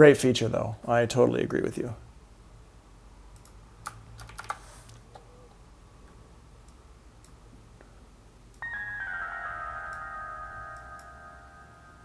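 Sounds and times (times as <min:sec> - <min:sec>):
computer keyboard clicks: 0:03.4 - 0:05.2
low steady hum: 0:05.1 - 0:12.0
synthesized bell chord: 0:08.6 - 0:12.0.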